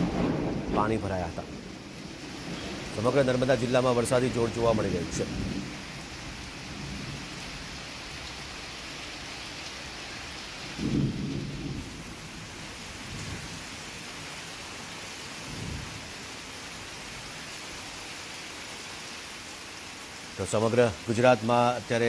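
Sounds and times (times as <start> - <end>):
thunder rumbling: 0.0 - 7.8, 10.7 - 13.7
heavy rain: 0.0 - 22.0.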